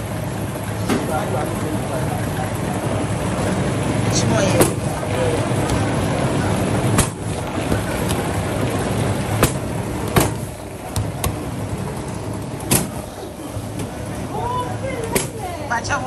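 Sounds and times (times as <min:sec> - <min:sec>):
dough rolling machine droning: 0:00.0 - 0:16.0
sharp knocks: 0:09.4 - 0:11.4, 0:12.7 - 0:13.0.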